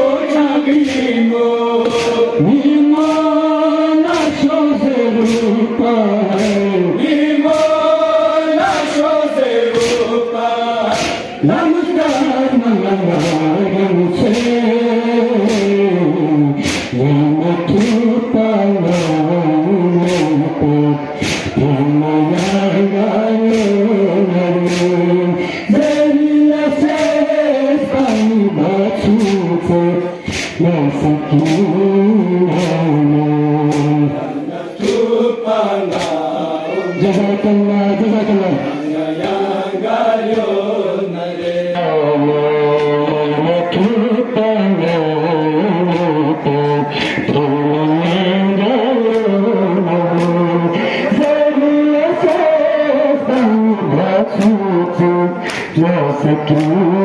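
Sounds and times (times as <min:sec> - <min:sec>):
man singing a lament: 0:00.0 - 0:57.0
mourners chanting: 0:00.0 - 0:57.0
chest beating slaps: 0:00.1 - 0:10.2, 0:10.8 - 0:33.0, 0:33.6 - 0:37.4, 0:45.8 - 0:48.4, 0:50.1 - 0:51.4, 0:54.3 - 0:55.9.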